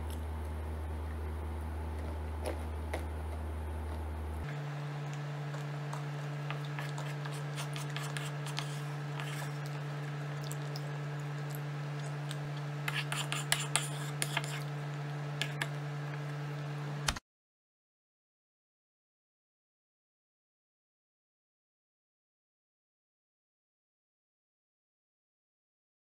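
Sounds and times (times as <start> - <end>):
steady low hum: 0.0 - 17.2
wooden spoon scraping wooden bowl: 5.9 - 9.8, 12.0 - 14.7.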